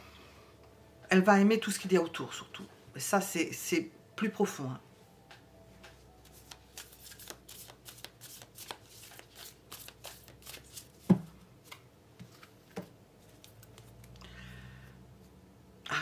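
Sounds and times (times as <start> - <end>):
playing cards being shuffled: 5.9 - 14.3.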